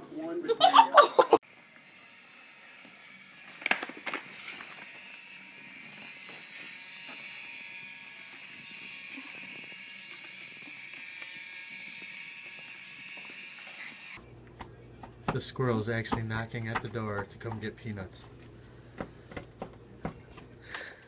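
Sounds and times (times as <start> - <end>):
toy train motor whirring: 1.4 - 14.2.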